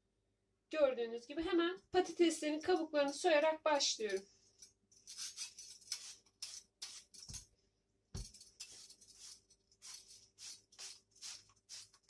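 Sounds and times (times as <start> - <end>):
peeler scraping potato skin: 5.0 - 7.4, 8.3 - 12.0.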